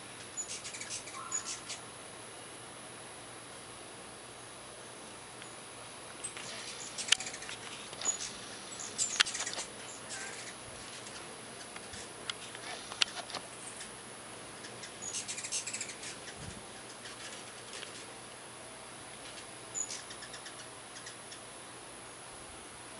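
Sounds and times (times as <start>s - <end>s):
hummingbirds chittering: 0.0s - 2.5s, 4.2s - 21.6s.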